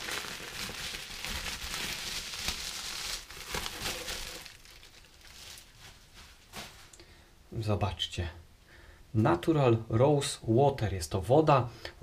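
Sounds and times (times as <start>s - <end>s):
bubble wrap crinkling: 0.0s - 7.0s.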